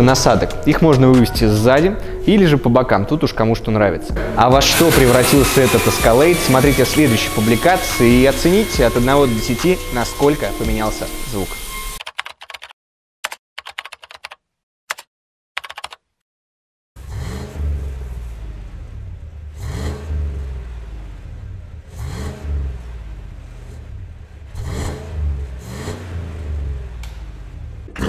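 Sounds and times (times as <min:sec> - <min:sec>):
engine idling and revving: 0:04.2 - 0:11.2, 0:17.0 - 0:28.0.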